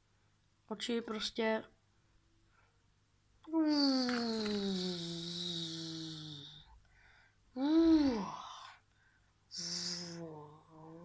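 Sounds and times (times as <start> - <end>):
person humming or sighing: 3.4 - 6.8, 7.6 - 8.7, 9.5 - 11.0.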